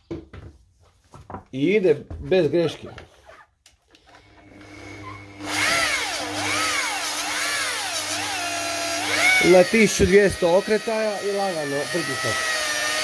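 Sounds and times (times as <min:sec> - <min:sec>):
rotary polisher whining: 0:04.0 - 0:13.0.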